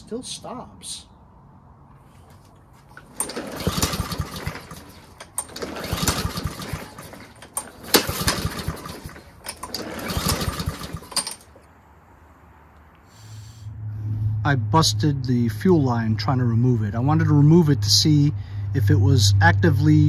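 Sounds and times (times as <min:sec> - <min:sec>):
lawn mower engine pull-started: 0:02.2 - 0:11.7.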